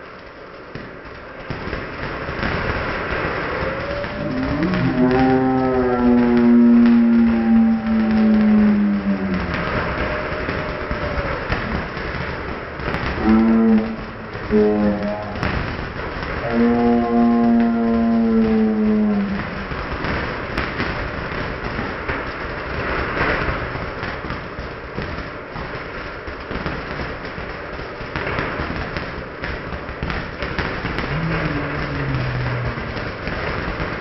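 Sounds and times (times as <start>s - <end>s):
slowed firework crackling rush: 0.0s - 34.0s
steady drawn-out tone: 2.2s - 23.7s, 31.0s - 34.0s.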